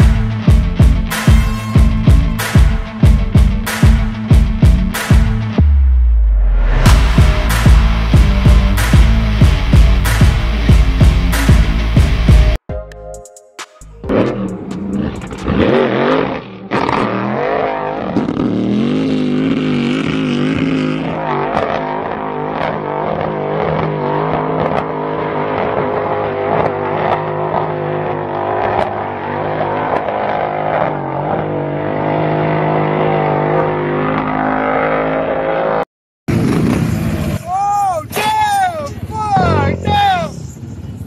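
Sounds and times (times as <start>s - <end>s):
engine running at high revs: 3.7s - 12.6s, 14.0s - 37.4s.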